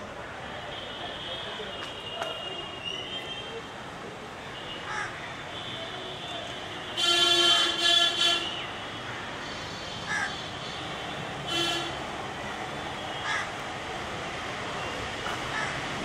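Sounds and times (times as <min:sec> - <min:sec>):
outdoor background noise: 0:00.0 - 0:16.0
crows cawing: 0:04.8 - 0:05.2, 0:09.0 - 0:10.8, 0:13.2 - 0:13.5, 0:15.5 - 0:15.9
vehicle horn honking: 0:05.6 - 0:08.7, 0:11.0 - 0:12.1.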